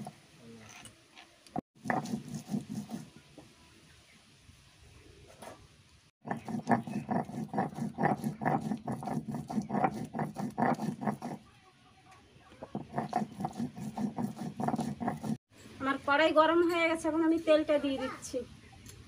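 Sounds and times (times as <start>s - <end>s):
stone roller grinding on stone: 1.8s - 3.1s, 6.2s - 11.4s, 12.7s - 15.4s.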